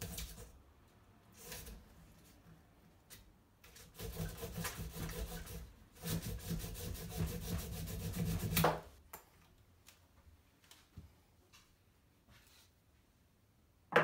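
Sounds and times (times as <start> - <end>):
hand saw cutting wood: 3.8 - 8.7.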